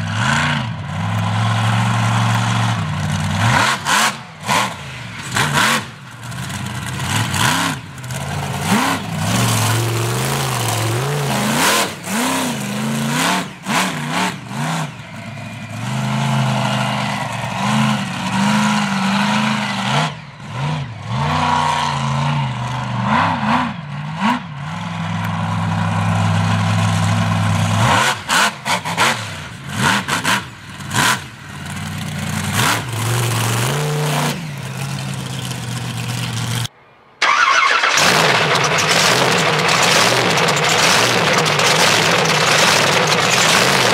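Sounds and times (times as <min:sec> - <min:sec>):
monster truck engine revving: 0:00.0 - 0:43.9.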